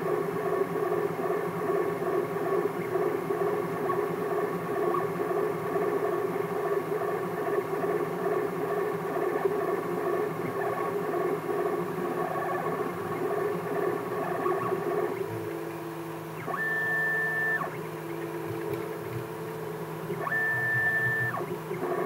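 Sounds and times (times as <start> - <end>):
stepper motors whining: 16.4 - 22.0.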